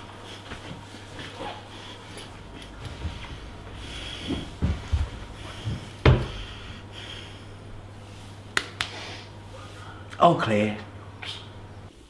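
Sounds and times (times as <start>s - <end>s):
steady low hum: 0.0s - 12.0s
dull knocks and thumps: 2.7s - 6.5s.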